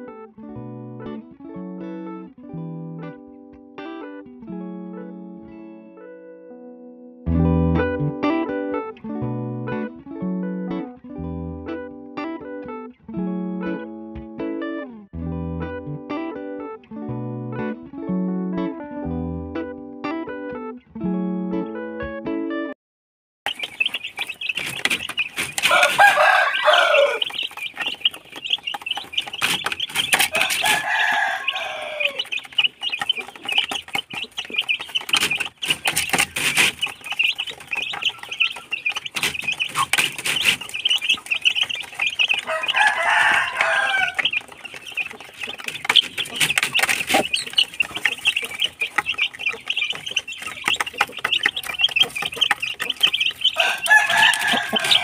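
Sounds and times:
beaks tapping on a feeder: 23.5s - 55.0s
chicken calling: 23.5s - 55.0s
chicks peeping: 23.5s - 55.0s.

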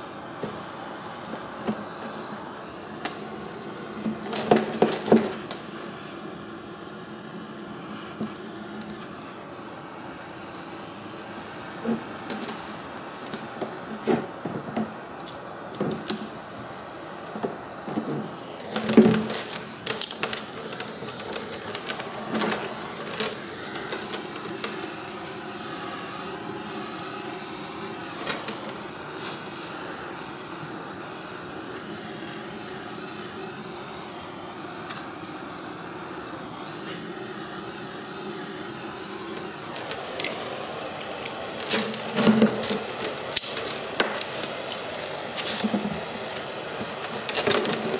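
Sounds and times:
propane torch hissing: 0.0s - 47.9s
knocks and clatter of plastic: 17.4s - 24.8s, 41.6s - 43.2s.

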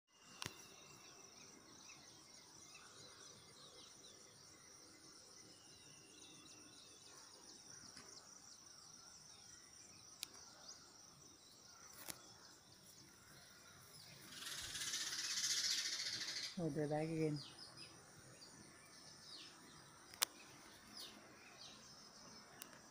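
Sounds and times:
distant birds chirping: 0.2s - 22.9s
steady high hiss: 8.1s - 22.9s
sharp clicks: 20.1s - 20.4s.

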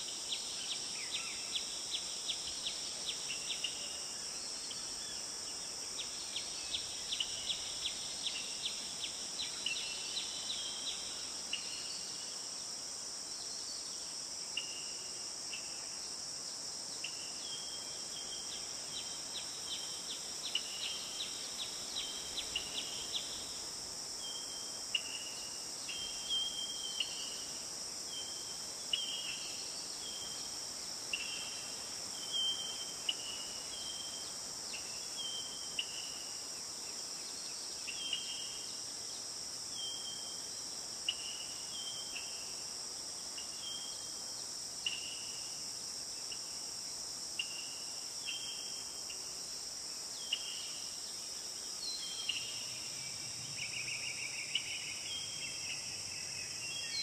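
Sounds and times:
high-pitched insect chorus: 0.0s - 57.0s.

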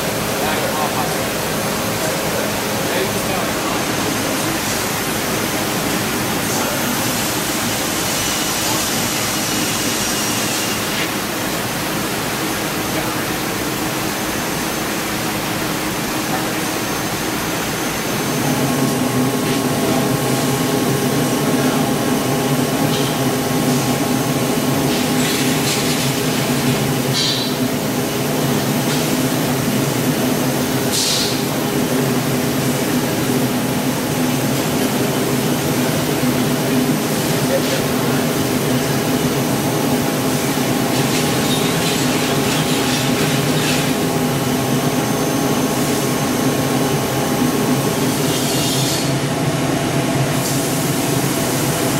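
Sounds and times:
steady machine hiss: 0.0s - 20.7s, 30.7s - 45.1s.

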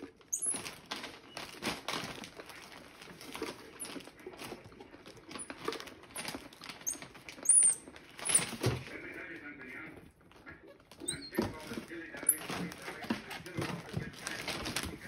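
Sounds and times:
rustling and rattling in plastic jar: 0.0s - 8.9s, 10.9s - 15.0s
monkey squeaking: 0.3s - 0.6s, 6.8s - 8.5s, 10.5s - 13.4s.

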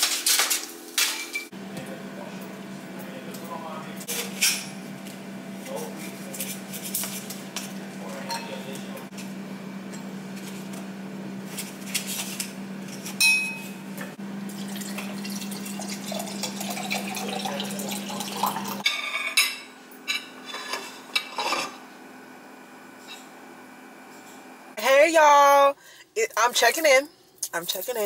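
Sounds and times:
knife clinking on a plate: 8.2s - 8.6s
water poured into a glass: 14.5s - 18.8s.

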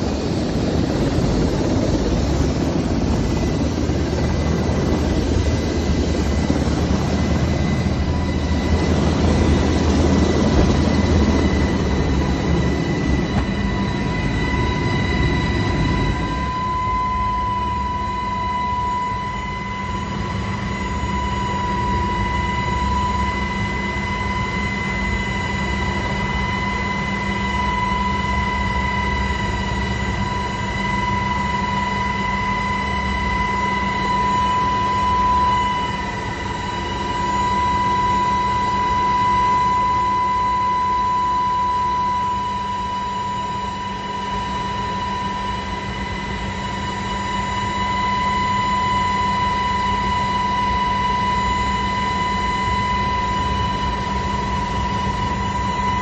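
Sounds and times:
helicopter rotor and engine drone: 0.0s - 56.0s.

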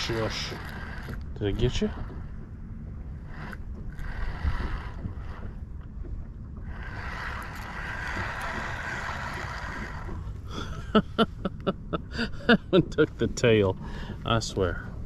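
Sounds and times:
fishing reel cranking: 0.0s - 2.4s, 3.2s - 5.9s, 6.6s - 10.6s
wind rumble on microphone: 0.0s - 15.0s.

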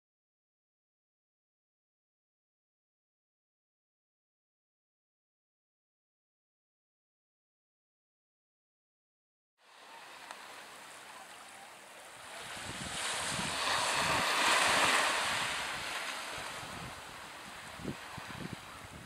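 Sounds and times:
surf washing on shore: 9.6s - 19.0s
wind buffeting microphone: 12.2s - 19.0s.

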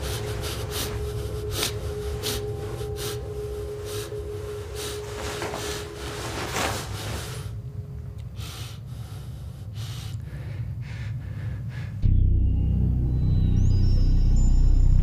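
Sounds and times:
man breathing hard: 0.0s - 7.7s, 8.3s - 12.1s
loud low music: 12.0s - 15.0s.

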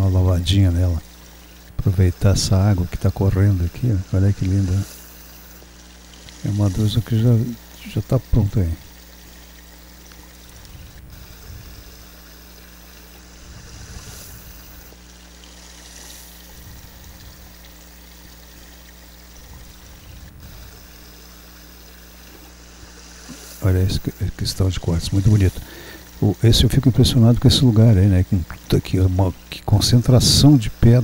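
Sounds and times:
water trickling over stones: 0.0s - 31.0s.

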